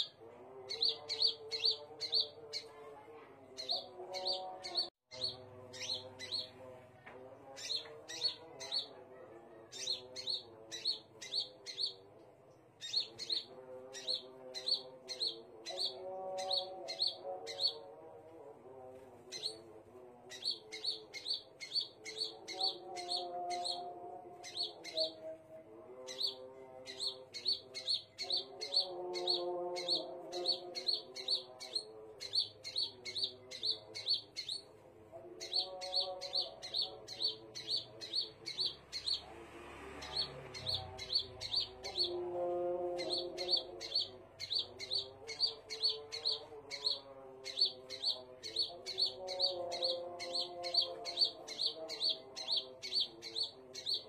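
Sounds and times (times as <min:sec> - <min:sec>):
bird high sharp chirps: 0:20.3 - 0:25.2, 0:26.1 - 0:34.7, 0:35.4 - 0:39.3, 0:43.0 - 0:54.0.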